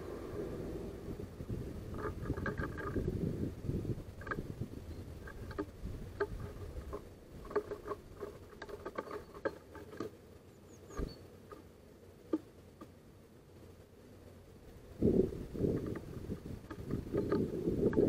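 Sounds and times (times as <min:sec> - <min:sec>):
birds pecking on wood: 0:01.9 - 0:03.5, 0:04.1 - 0:10.2, 0:15.5 - 0:18.0.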